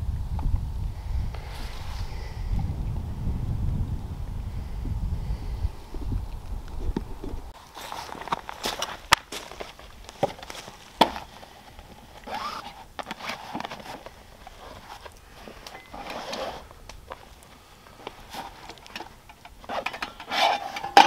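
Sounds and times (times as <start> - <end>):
paper sack rustling: 7.6 - 17.4.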